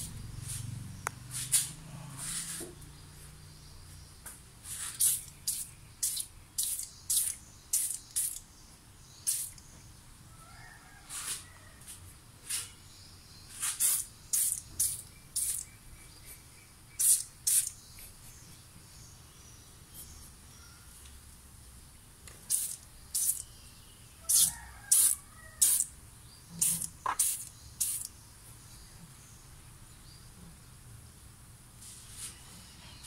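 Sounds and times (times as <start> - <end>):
aerosol spray hissing: 4.8 - 8.4, 9.3 - 9.6, 13.6 - 15.6, 17.0 - 17.7, 22.5 - 23.4, 24.3 - 25.9, 26.6 - 28.1.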